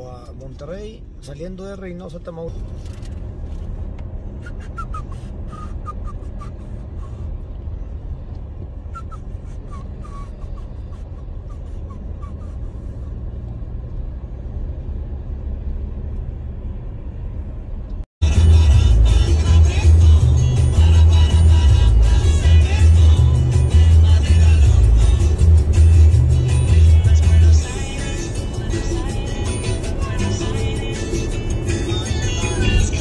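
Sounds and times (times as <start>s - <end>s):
car road and engine rumble: 0.0s - 33.0s
loud music: 18.2s - 33.0s.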